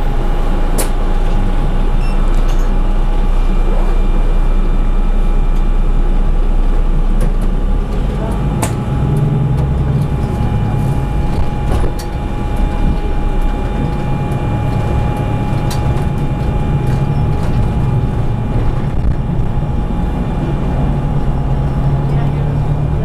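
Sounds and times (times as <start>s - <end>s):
bus engine and road rumble: 0.0s - 23.0s
thin steady whine: 0.0s - 23.0s
sharp clicks and rattles: 7.2s - 19.9s.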